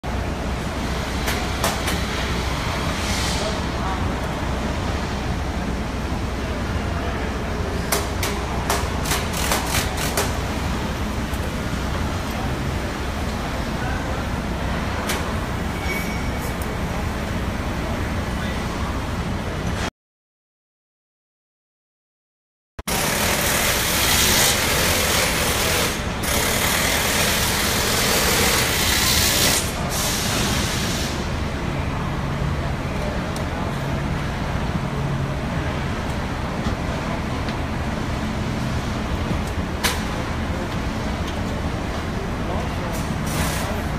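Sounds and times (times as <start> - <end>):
sharp clicks and knocks: 7.9 - 10.4
factory line rumble: 29.6 - 43.9.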